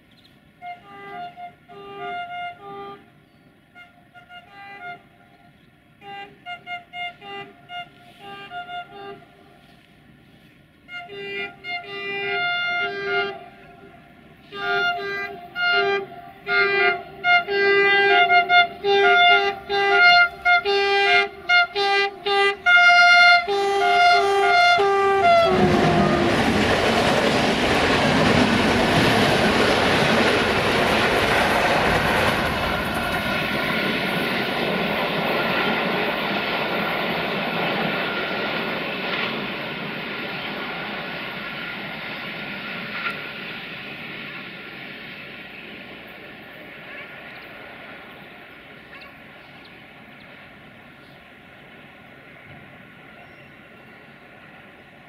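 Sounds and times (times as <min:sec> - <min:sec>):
train wheels on rail: 0:00.0 - 0:55.0
locomotive horn blasts: 0:00.6 - 0:09.8, 0:10.8 - 0:26.6.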